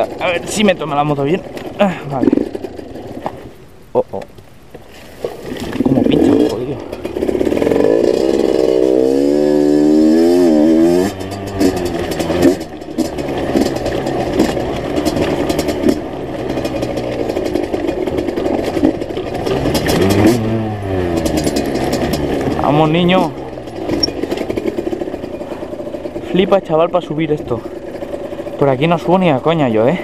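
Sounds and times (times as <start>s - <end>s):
dirt bike engine revving: 0.0s - 3.3s, 5.7s - 30.0s
knocks and clatter over loose rock: 11.1s - 30.0s.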